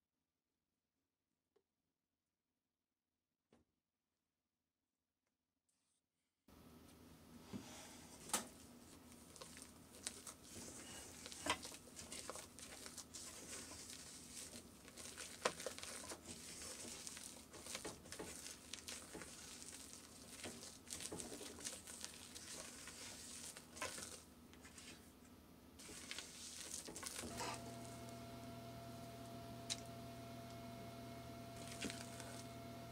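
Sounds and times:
spatula squishing batter: 8.2s - 25.2s, 25.8s - 28.2s, 31.5s - 32.6s
low steady hum: 23.8s - 32.9s.

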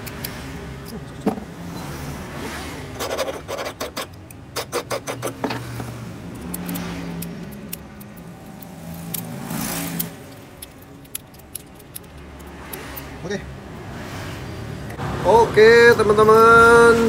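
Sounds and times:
key clicking in lock: 10.0s - 13.1s.

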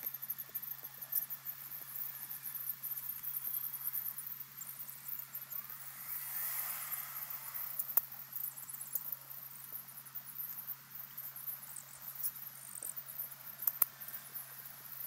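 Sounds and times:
faint high-pitched chirping: 0.0s - 15.0s
sharp click: 13.6s - 14.0s.

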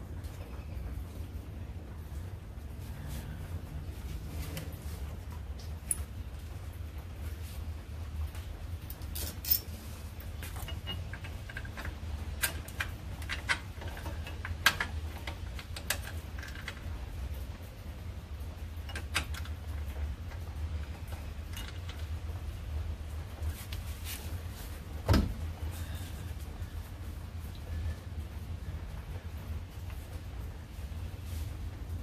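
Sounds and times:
steady low hum: 0.0s - 32.0s
bolts and washers clinking: 5.3s - 6.3s, 8.8s - 17.2s, 18.7s - 22.5s.

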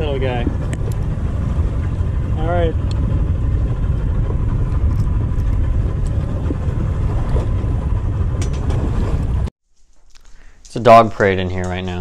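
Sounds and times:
boat engine low rumble: 0.0s - 9.5s.

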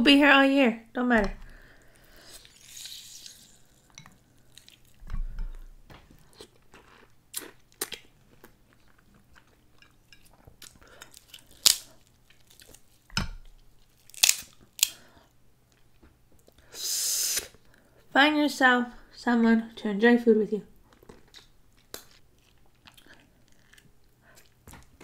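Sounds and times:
close-up chewing: 1.8s - 14.9s, 20.8s - 25.0s
crab shells cracking: 10.2s - 13.1s, 13.8s - 15.0s.

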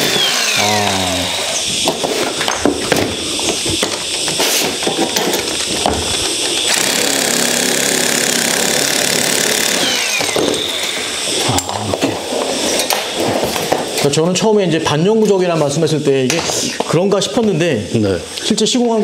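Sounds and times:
metal shear motor whine: 0.0s - 14.0s.

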